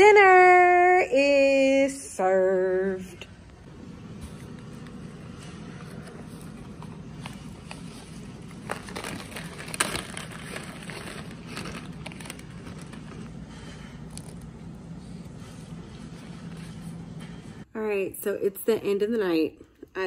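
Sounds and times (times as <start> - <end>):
steady low hum: 0.0 - 20.0
paper and cardboard rustling: 4.3 - 13.4.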